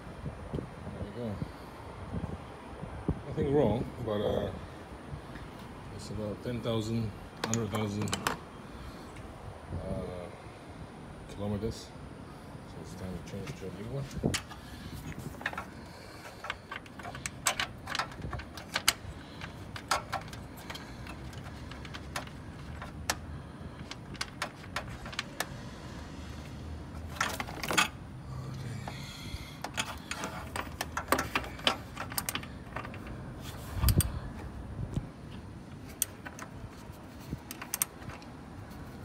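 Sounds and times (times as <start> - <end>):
metal tools clicking and clinking: 7.4 - 8.4, 15.4 - 23.2, 27.1 - 28.0, 29.6 - 33.2.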